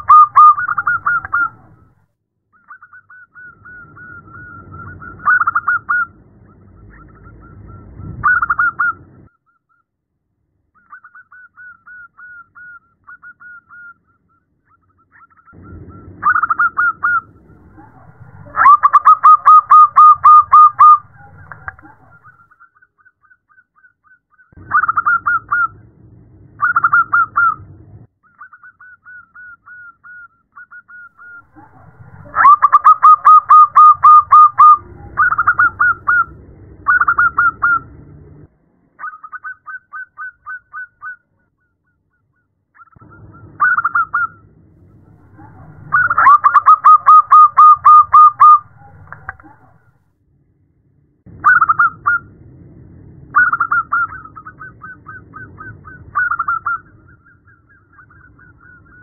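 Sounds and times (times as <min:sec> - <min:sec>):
dove cooing trills: 0:00.0 - 0:01.8, 0:02.7 - 0:06.1, 0:15.2 - 0:22.4, 0:30.9 - 0:36.3, 0:36.9 - 0:37.9, 0:45.1 - 0:49.8, 0:53.4 - 0:59.0.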